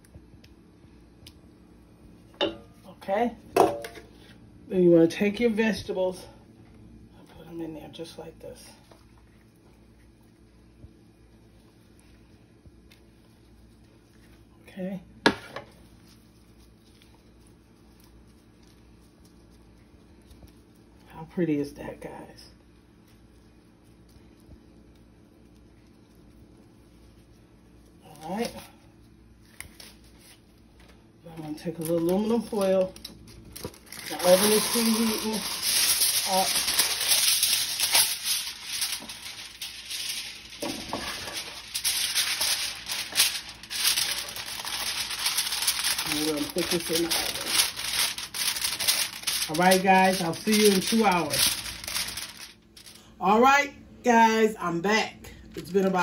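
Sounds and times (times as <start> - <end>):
low steady hum: 0.0 - 56.0
aluminum foil crinkling: 15.7 - 21.2, 21.9 - 53.1.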